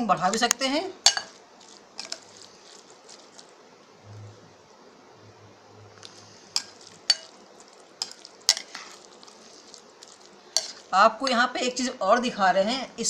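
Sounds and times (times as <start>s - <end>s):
spoon stirring in glass bowl: 0.4s - 3.6s, 5.9s - 10.9s.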